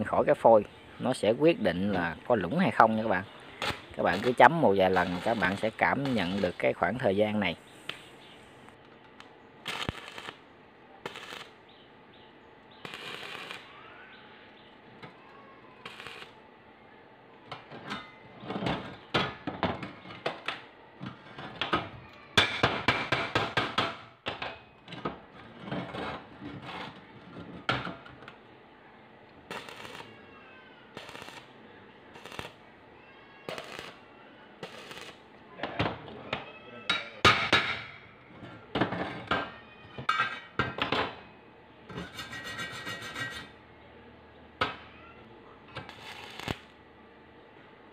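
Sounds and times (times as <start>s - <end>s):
welding arc crackling: 3.5s - 6.8s, 9.6s - 10.4s, 11.0s - 11.6s, 12.8s - 13.7s, 15.8s - 16.4s, 29.5s - 30.1s, 30.9s - 32.6s, 33.5s - 34.0s, 34.6s - 35.2s, 45.8s - 46.8s.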